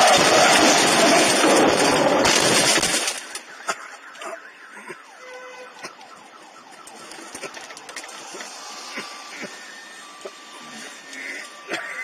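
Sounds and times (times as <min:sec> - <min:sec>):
car crash crunching and glass breaking: 0:00.0 - 0:03.6
faint car alarm: 0:03.2 - 0:12.0.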